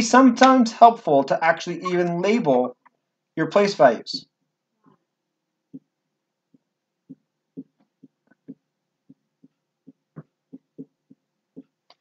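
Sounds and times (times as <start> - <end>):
marker writing on whiteboard: 1.2 - 3.0, 5.7 - 12.0.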